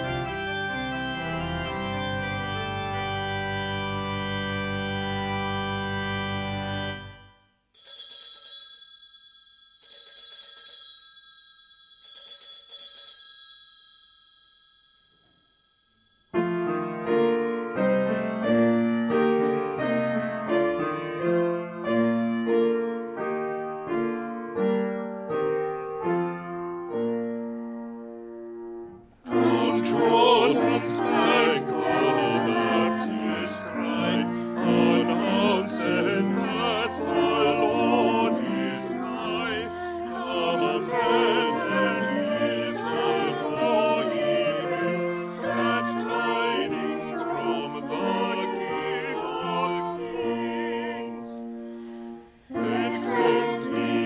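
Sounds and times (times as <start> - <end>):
keyboard run of notes: 0.0 - 7.4
organ chord: 0.0 - 7.4, 27.7 - 54.0
bell-like chimes: 7.8 - 16.4.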